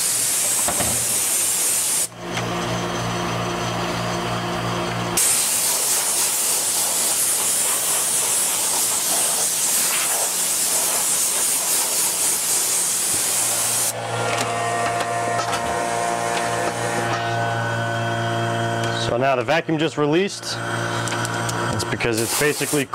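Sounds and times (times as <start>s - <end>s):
air blow gun hissing: 0.0s - 2.1s, 5.2s - 14.0s, 22.1s - 22.9s.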